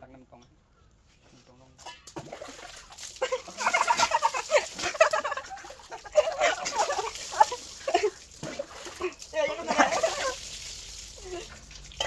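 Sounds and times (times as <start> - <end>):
water splashing: 1.8 - 12.0
people cackling and laughing: 3.1 - 10.5.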